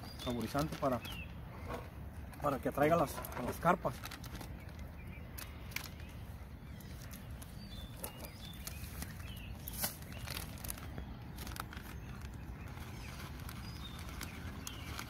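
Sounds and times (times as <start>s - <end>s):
plastic packet crinkling: 0.1s - 1.2s, 2.9s - 6.2s, 6.9s - 15.0s.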